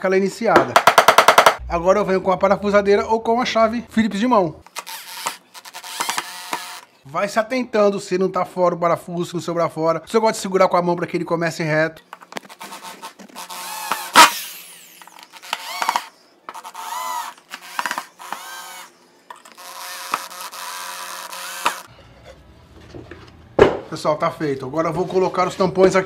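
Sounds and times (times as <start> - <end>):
electric drill driving screws: 4.6 - 7.0, 12.4 - 21.9
knock: 23.6 - 23.9.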